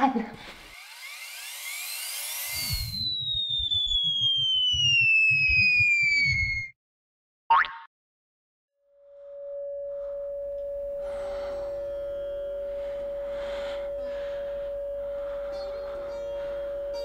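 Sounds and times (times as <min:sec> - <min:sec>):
rising zap sound effect: 0:00.7 - 0:06.7
steady pure ringing tone: 0:08.9 - 0:17.0
soft ambient music: 0:09.1 - 0:17.0.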